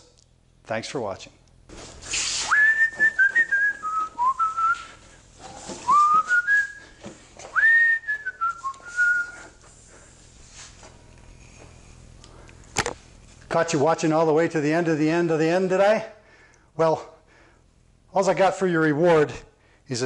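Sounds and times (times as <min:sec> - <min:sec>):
man whistling a tune: 0:02.4 - 0:05.0, 0:05.8 - 0:09.6.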